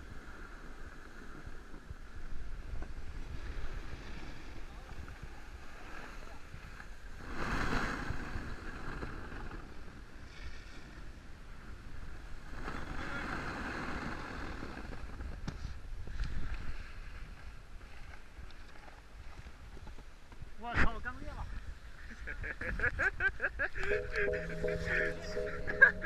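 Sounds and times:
snowboard scraping over snow: 7.2 - 9.8, 12.5 - 15.3.

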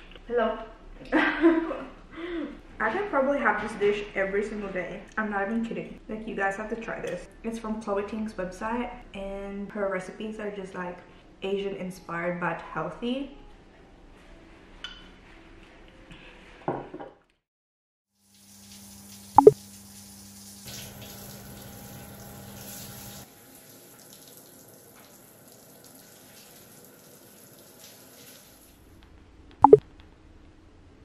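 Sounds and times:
shower water spraying: 18.2 - 28.7.

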